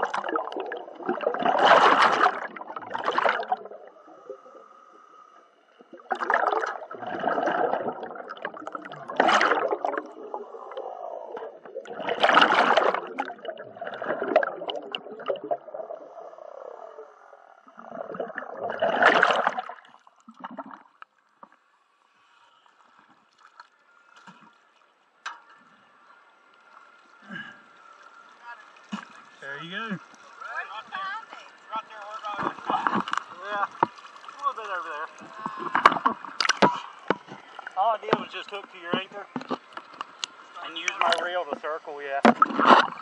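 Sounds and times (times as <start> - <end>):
underwater breath bubbles gurgling: 0.0 - 20.9.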